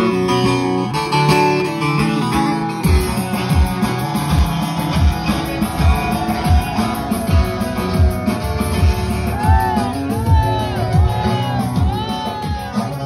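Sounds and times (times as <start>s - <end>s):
plucked long-necked lute: 0.0s - 6.6s
low drum beat: 2.8s - 13.0s.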